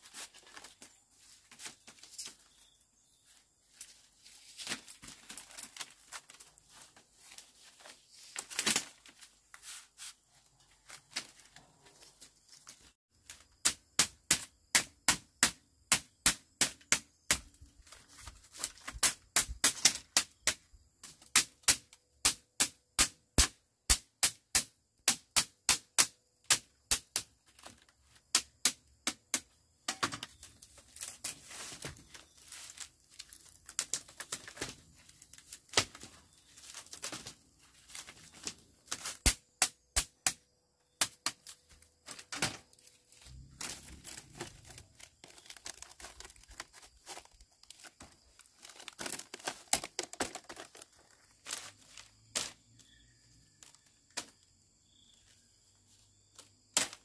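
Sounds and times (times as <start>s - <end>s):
rustling and crackling: 0.0s - 13.4s, 29.9s - 39.3s, 41.4s - 52.6s.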